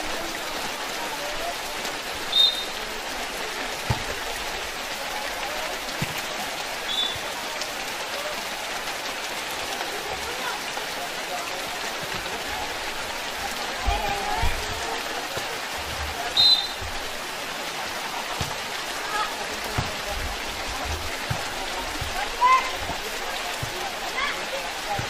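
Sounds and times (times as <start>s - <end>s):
heavy rain on concrete: 0.0s - 25.0s
referee's whistle blasts: 2.3s - 2.8s, 6.9s - 7.2s, 16.3s - 16.9s
dull thumps: 13.8s - 17.2s, 18.4s - 24.2s.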